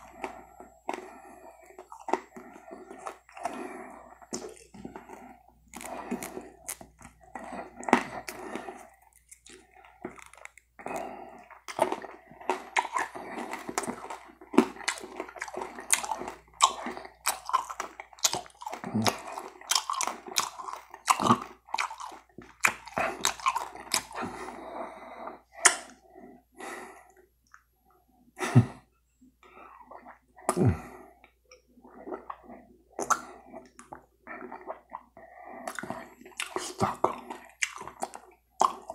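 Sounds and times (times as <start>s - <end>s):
wet chewing and sucking sounds: 0.0s - 26.1s, 29.4s - 38.9s.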